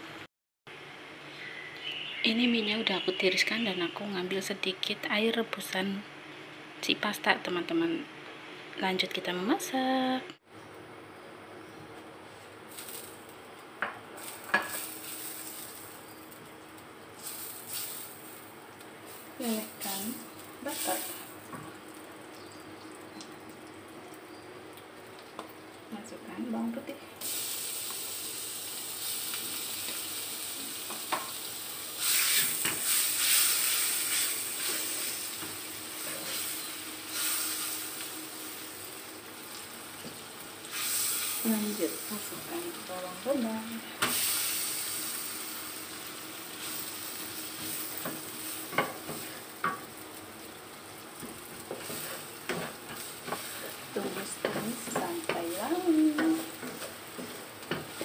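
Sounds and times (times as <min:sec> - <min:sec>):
butter sizzling in a wok: 0:12.3 - 0:58.0
wooden spatula stirring: 0:51.2 - 0:58.0.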